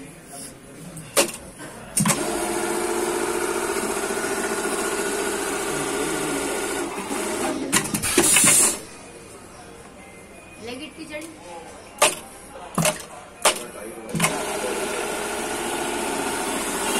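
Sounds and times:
sewing machine stitching: 14.1 - 16.9.

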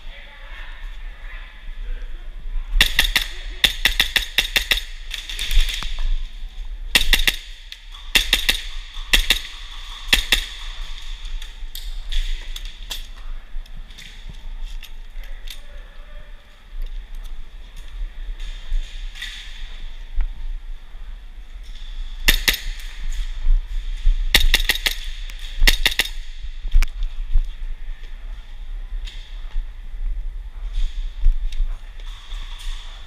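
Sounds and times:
airsoft gunfire: 2.8 - 5.9, 6.9 - 11.0, 22.2 - 22.8, 24.3 - 26.3.

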